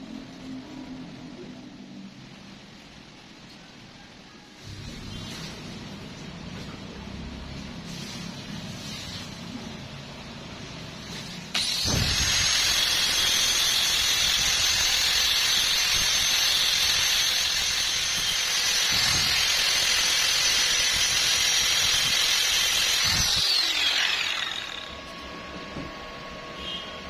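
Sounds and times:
angle grinder whining: 0:11.5 - 0:27.0
disc grinding on steel: 0:11.6 - 0:25.7.

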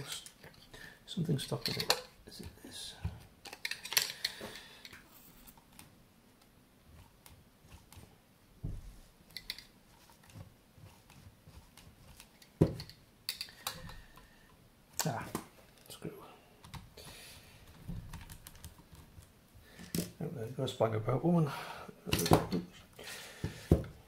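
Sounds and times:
dull thump: 0:08.6 - 0:08.9.

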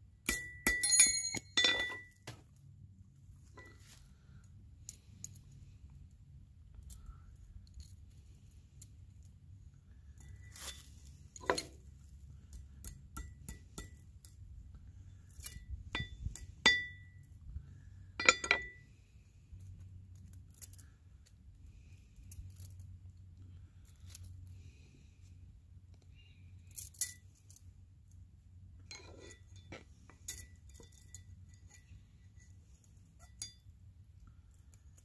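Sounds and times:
metal pin clinking against ring: 0:00.3 - 0:02.3, 0:15.2 - 0:17.3, 0:18.2 - 0:18.8, 0:26.6 - 0:27.7, 0:28.9 - 0:35.0.

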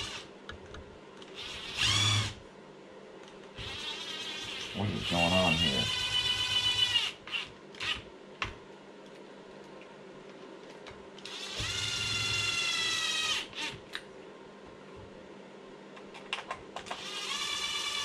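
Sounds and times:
electric screwdriver whirring: 0:01.4 - 0:02.4, 0:11.2 - 0:13.8, 0:17.0 - 0:18.0.

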